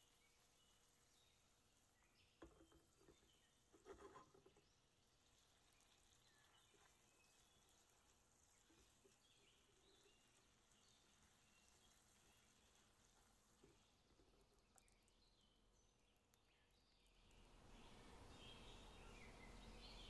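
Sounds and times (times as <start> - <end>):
faint knocks and scrapes: 2.4 - 10.3, 11.8 - 15.1.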